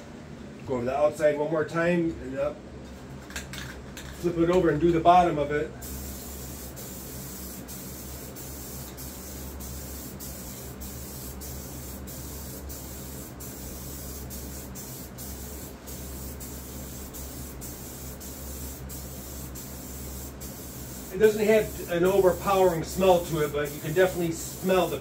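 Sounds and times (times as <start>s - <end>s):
aerosol can spraying: 5.8s - 25.0s.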